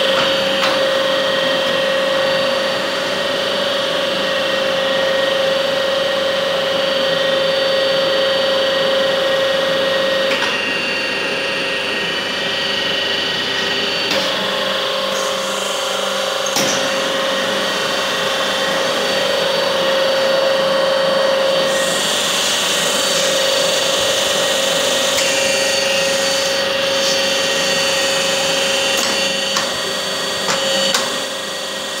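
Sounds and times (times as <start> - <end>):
milling machine motor hum: 0.0 - 32.0
machine hiss: 15.1 - 16.8, 21.7 - 32.0.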